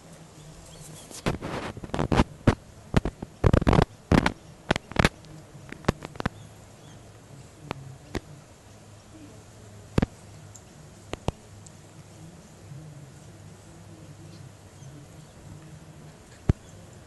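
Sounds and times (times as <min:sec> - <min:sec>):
animals play-fighting snaps: 0:00.0 - 0:08.3.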